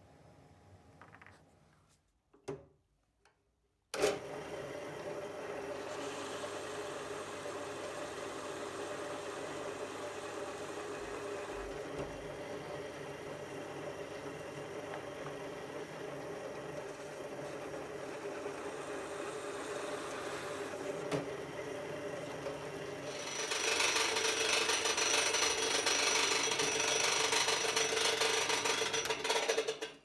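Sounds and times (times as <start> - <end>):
pillar drill boring into wood: 23.0 - 29.4.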